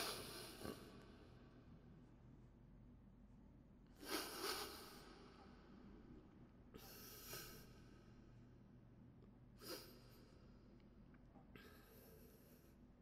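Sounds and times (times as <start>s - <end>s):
man breathing and sniffing: 0.0s - 1.2s, 3.9s - 5.5s, 6.8s - 8.2s, 9.6s - 10.4s.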